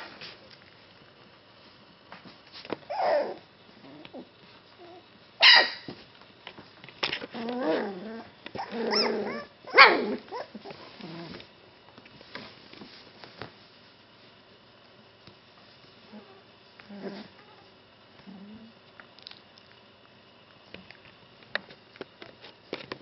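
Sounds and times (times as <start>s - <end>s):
puppies yapping and growling: 2.8s - 5.9s, 7.3s - 11.4s.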